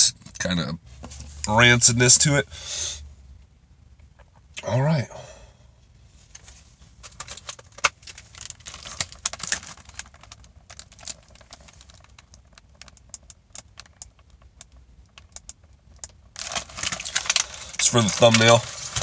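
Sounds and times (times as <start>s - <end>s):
plastic carton crackling and clicking: 7.0s - 19.0s.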